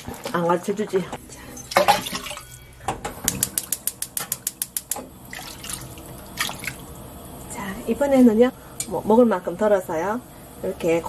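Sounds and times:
broth pouring into pot: 0:03.5 - 0:08.8.

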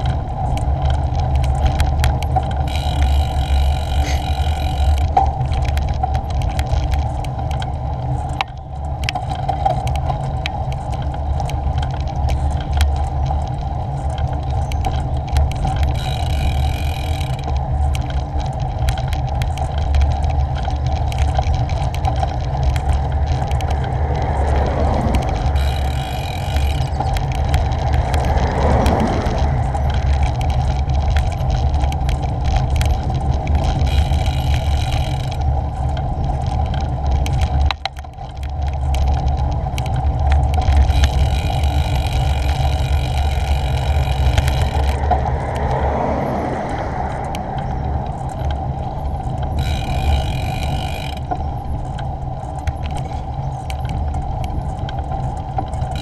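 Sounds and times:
cars passing: 0:00.0 - 0:06.2, 0:19.3 - 0:36.3, 0:40.0 - 0:53.0
bicycle tyre noise on road: 0:00.0 - 0:56.0
wind buffeting microphone: 0:00.0 - 0:56.0.

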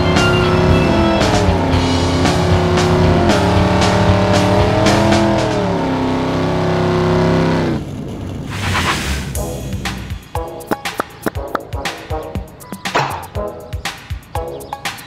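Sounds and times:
background music with beat: 0:00.0 - 0:05.8, 0:09.3 - 0:15.0
car engine revving: 0:00.0 - 0:12.4.

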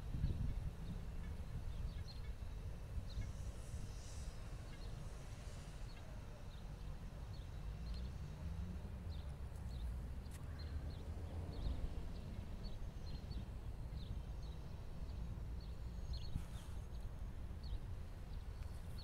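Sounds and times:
wind buffeting microphone: 0:00.0 - 0:05.5.

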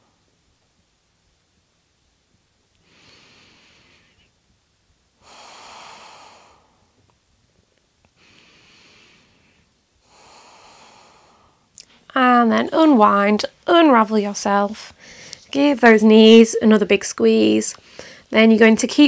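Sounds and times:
woman breathing slowly: 0:02.8 - 0:04.4, 0:05.2 - 0:07.1, 0:08.1 - 0:12.1, 0:14.9 - 0:15.5, 0:17.8 - 0:18.3.

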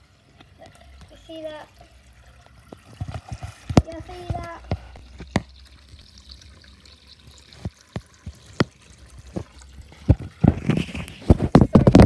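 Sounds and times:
water drips: 0:00.0 - 0:11.9
tap water splashing into tub: 0:00.4 - 0:12.0.

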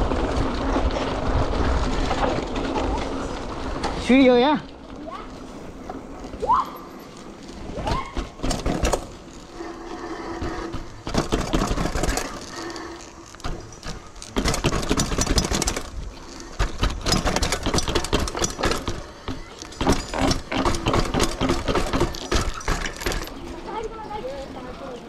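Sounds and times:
bike frame clattering and rattling: 0:00.0 - 0:25.0
bike wheels rolling: 0:00.0 - 0:25.0.

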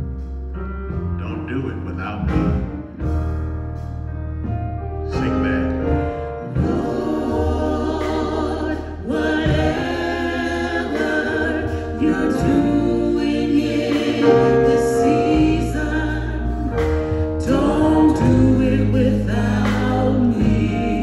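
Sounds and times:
bass accompaniment: 0:00.0 - 0:21.0
gospel choir singing: 0:05.0 - 0:21.0.

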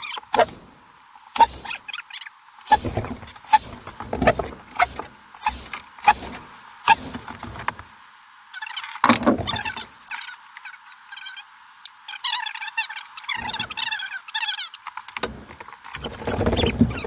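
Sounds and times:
screw gun knocks and whirs: 0:00.3 - 0:00.7, 0:01.4 - 0:01.8, 0:02.7 - 0:07.9, 0:15.2 - 0:17.0.

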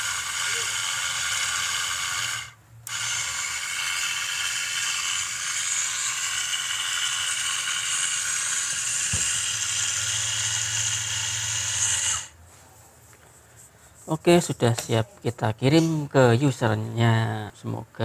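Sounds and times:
lathe motor whine: 0:00.0 - 0:12.4.

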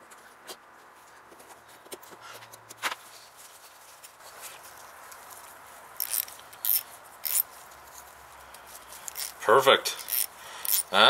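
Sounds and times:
hand ratchet clicking: 0:06.0 - 0:07.5, 0:08.9 - 0:11.0.

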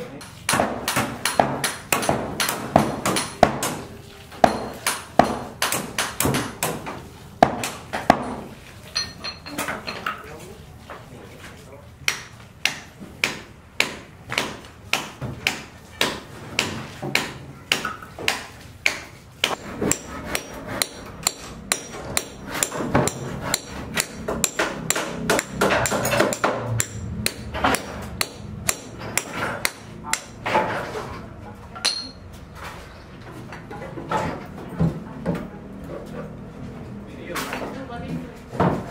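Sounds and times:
hand hammer striking: 0:00.5 - 0:08.5, 0:12.1 - 0:30.5.

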